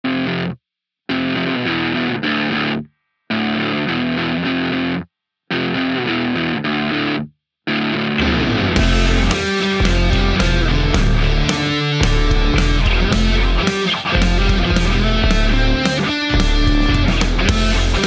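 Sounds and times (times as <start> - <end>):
distorted electric guitar riff: 0.0 - 18.0
rock band playing: 1.1 - 18.0.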